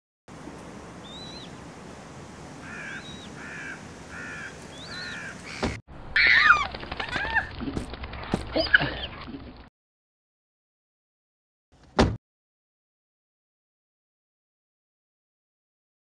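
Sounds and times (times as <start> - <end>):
whistled bird calls: 1.0 - 1.5, 2.9 - 3.3, 4.2 - 5.6
caw-like bird calls: 2.6 - 7.5
high squealing bird cries: 2.6 - 7.5.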